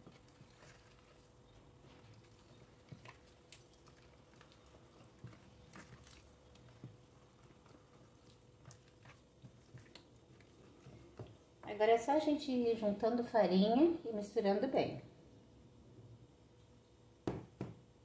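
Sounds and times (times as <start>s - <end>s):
spoon stirring wet batter: 0.0s - 11.8s.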